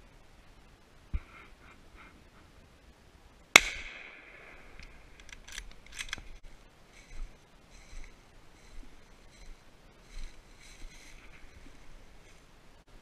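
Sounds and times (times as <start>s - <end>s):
rifle shot echoing: 3.5s - 5.2s
sharp clicks: 4.7s - 6.3s.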